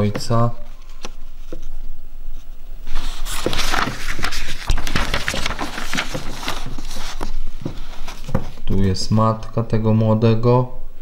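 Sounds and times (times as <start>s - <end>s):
paper rustling and crinkling: 2.8s - 8.8s.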